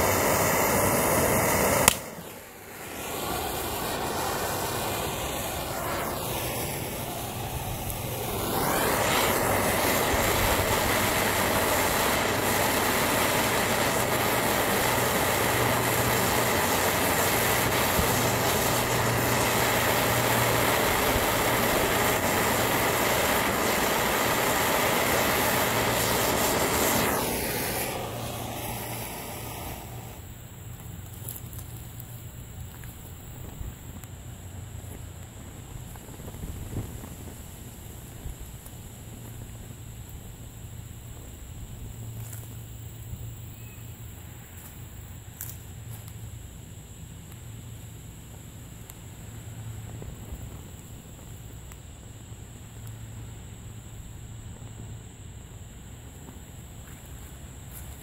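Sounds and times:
gas torch flame rushing: 0.0 - 31.9, 34.9 - 39.4
plastic burning: 0.0 - 41.4, 43.8 - 53.6, 56.0 - 58.0.

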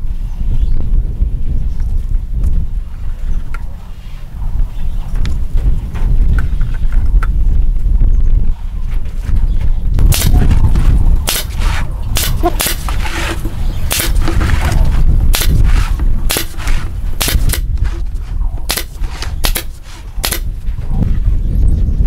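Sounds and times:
nail gun firing: 10.0 - 10.6, 11.2 - 17.9, 18.7 - 20.5.

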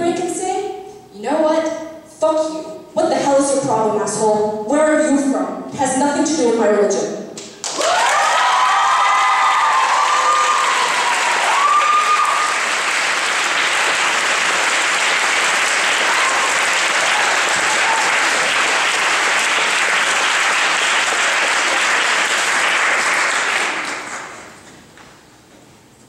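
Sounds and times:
audience applauding: 7.6 - 24.6.

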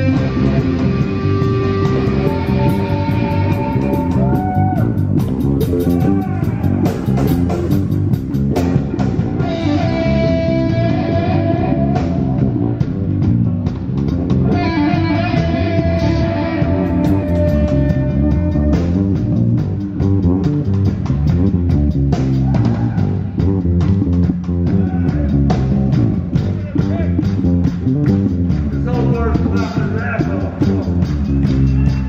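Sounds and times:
electric guitar long notes: 0.0 - 7.5, 8.7 - 12.8, 14.4 - 19.4
heavy rock band playing live: 0.0 - 32.0.

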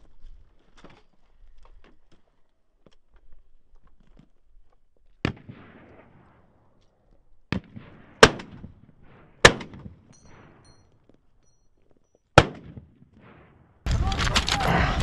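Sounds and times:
rifle shots with echo: 5.2 - 6.7, 7.5 - 10.7, 12.4 - 15.0.

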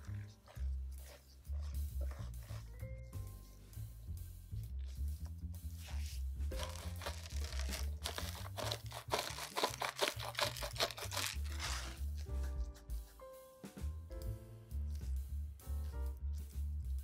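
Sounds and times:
soft background music: 0.0 - 17.0
pepper mill grinding: 6.5 - 12.0.

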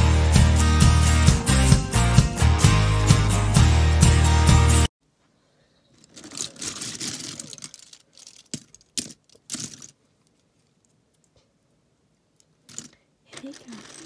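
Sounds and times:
plastic toy parts clattering: 5.9 - 11.3, 12.4 - 14.0.

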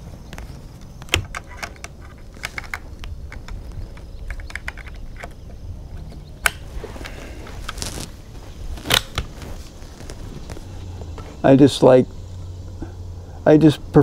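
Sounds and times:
rifle being handled clicking: 0.3 - 7.8, 8.8 - 9.3.

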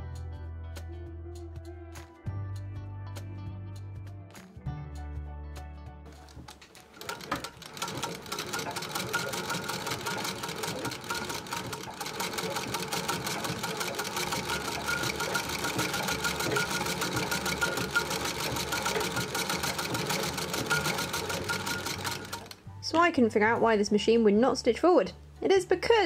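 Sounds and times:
treadle sewing machine stitching: 6.2 - 22.6.

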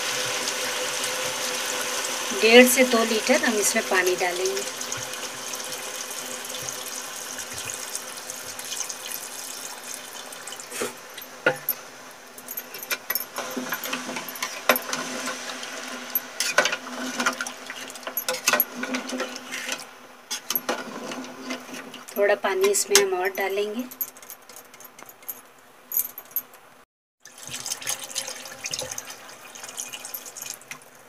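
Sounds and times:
water pouring into metal pot: 3.2 - 10.8, 27.2 - 30.9.

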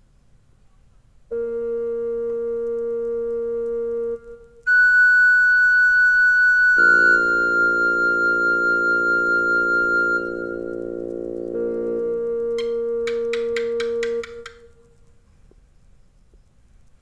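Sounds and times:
high pure keyboard note: 1.3 - 14.7
sustained low keyboard chord: 6.8 - 14.2.

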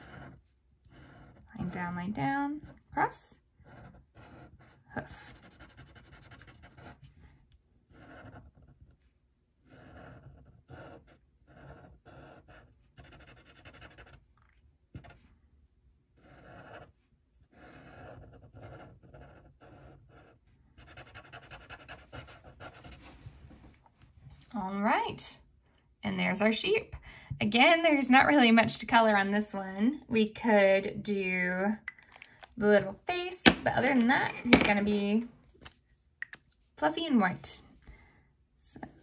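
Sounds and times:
marker scratching on paper: 0.0 - 2.0, 3.6 - 7.2, 7.9 - 9.0, 9.6 - 14.3, 15.0 - 15.3, 16.2 - 23.2.

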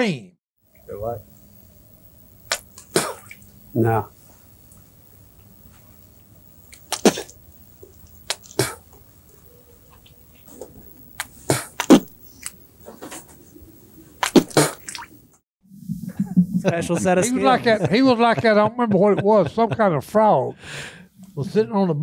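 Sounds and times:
men spitting: 2.5 - 3.4, 6.8 - 7.4, 8.3 - 8.9, 11.2 - 12.2, 14.2 - 15.0.

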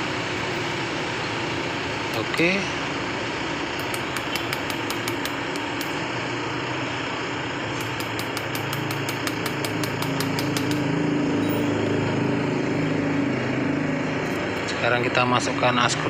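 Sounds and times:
engine running: 0.0 - 16.0
rapid light ticks: 3.8 - 6.0, 7.8 - 10.9.

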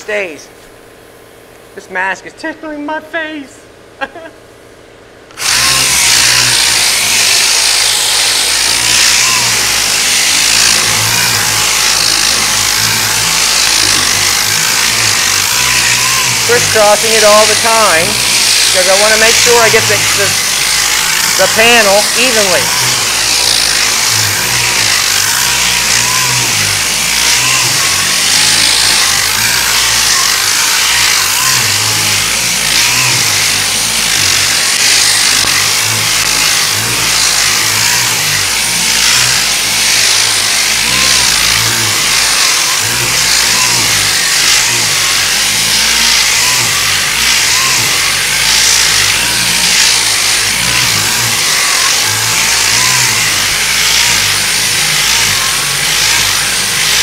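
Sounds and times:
sandpaper rasping: 5.4 - 57.0.

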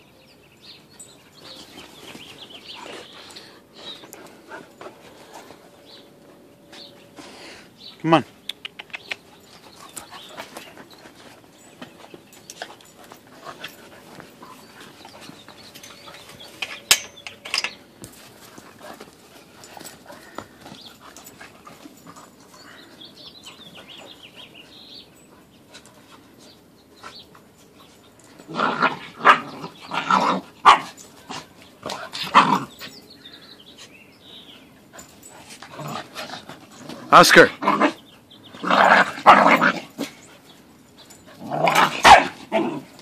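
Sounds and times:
puppies playing: 0.2 - 43.0
puppy barking: 42.0 - 42.3.

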